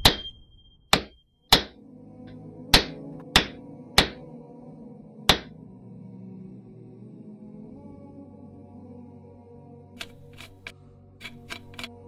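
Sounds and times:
hammer strikes with ring: 0.0s - 1.8s, 2.7s - 4.2s
soft ambient music: 0.0s - 12.0s.

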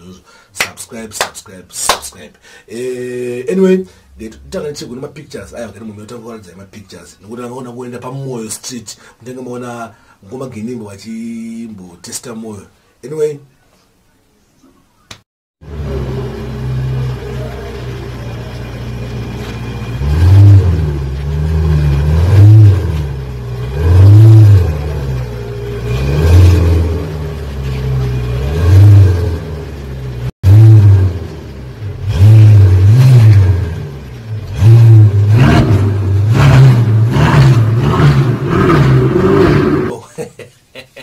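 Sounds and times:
sports car engine revving: 15.6s - 39.9s.

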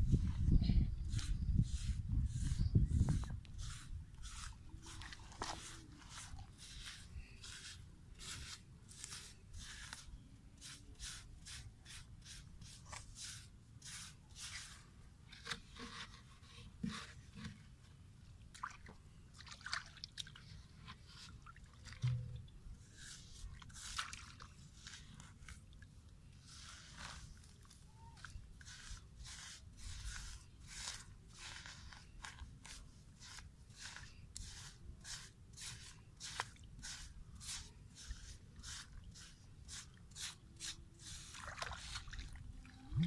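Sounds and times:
soil scraping: 0.0s - 17.6s, 26.4s - 42.2s
hands crunching soil: 0.1s - 14.8s.

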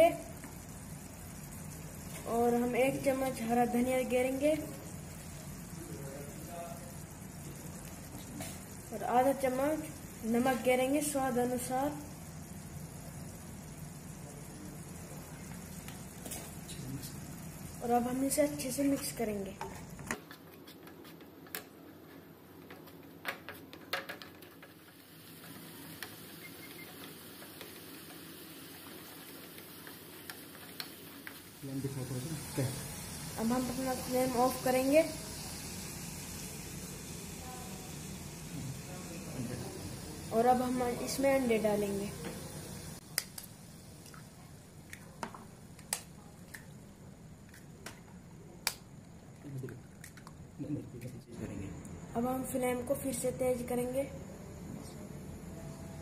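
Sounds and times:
sauce sizzling: 0.0s - 20.2s, 24.4s - 47.6s
wooden spatula stirring in pan: 19.6s - 31.6s
eggs cracking into a hot pan: 26.9s - 31.6s.

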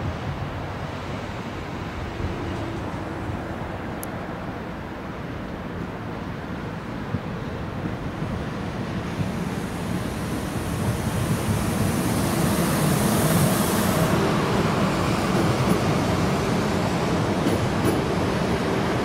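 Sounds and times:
train running past on rails: 0.0s - 19.0s
high hiss: 9.0s - 17.2s.

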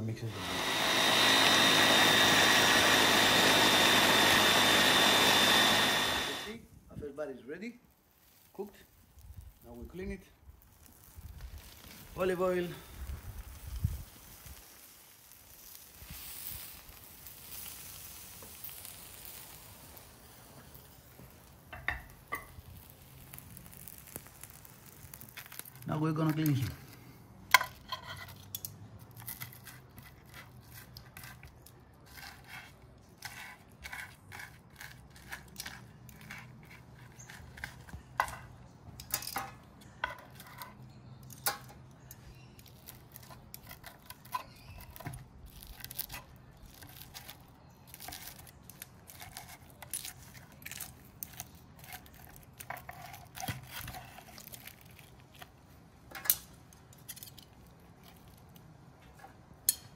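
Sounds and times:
cutlery scraping and tapping: 27.5s - 28.8s.

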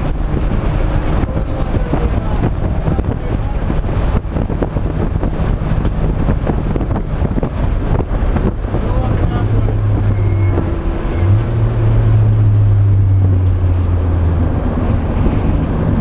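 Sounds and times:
race car engine under load: 0.0s - 16.0s
wind noise on microphone: 0.0s - 16.0s.

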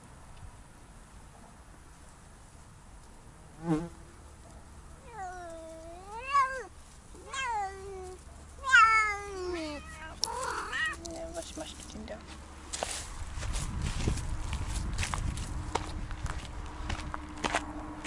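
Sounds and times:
rustle: 0.0s - 17.7s
cat meowing: 5.0s - 11.1s
cat yowling: 5.0s - 11.1s.

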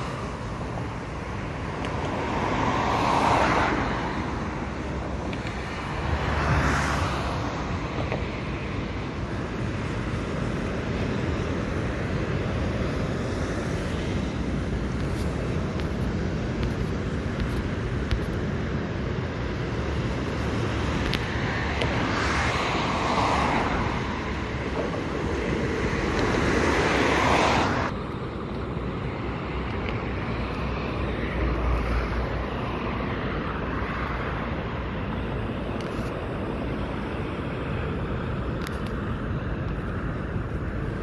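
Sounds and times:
loud rushing noise: 0.0s - 28.1s
motorway traffic noise: 0.0s - 41.0s
wind on microphone: 0.0s - 41.0s.

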